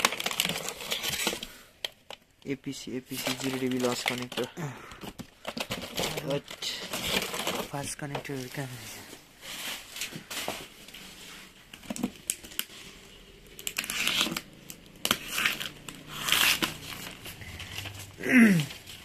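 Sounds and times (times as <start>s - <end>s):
paper rustling: 0.0s - 1.6s, 3.0s - 12.8s
plastic wrap crinkling: 0.0s - 19.0s
cardboard cartons being handled: 3.0s - 12.7s.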